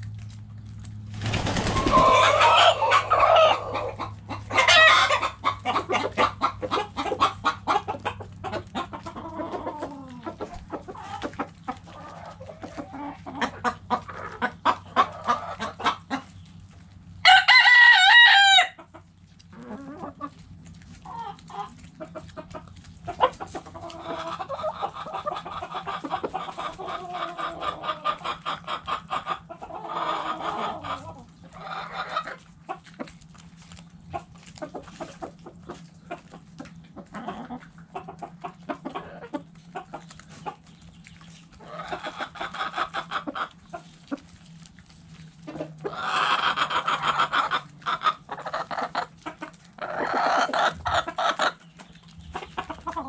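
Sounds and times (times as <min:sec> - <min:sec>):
hens clucking: 0:00.0 - 0:53.0
rooster crowing: 0:01.7 - 0:04.0, 0:17.2 - 0:18.8.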